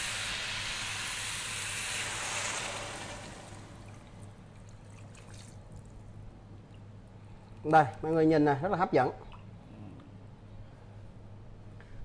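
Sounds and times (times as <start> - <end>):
meat sizzling in a pot: 0.0 - 3.8
water pouring and splashing: 0.0 - 5.9.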